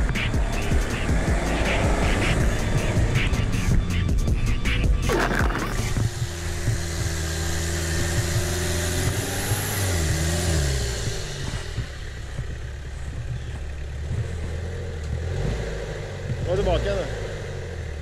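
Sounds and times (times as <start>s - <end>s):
truck engine at low revs: 0.0s - 18.0s.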